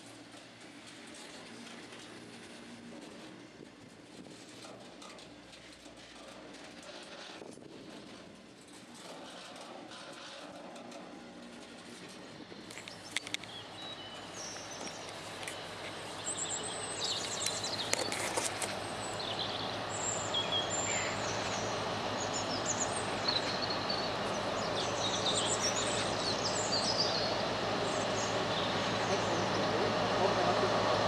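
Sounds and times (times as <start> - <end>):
freight train rumble: 0.0 - 31.0
sharp clicks: 12.7 - 13.6
small birds chirping: 12.7 - 29.8.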